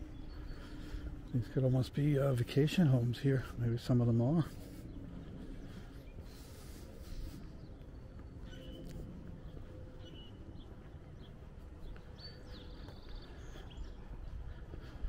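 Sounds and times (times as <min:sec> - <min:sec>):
birds chirping: 0:00.0 - 0:15.0
steady low rumble: 0:00.0 - 0:15.0.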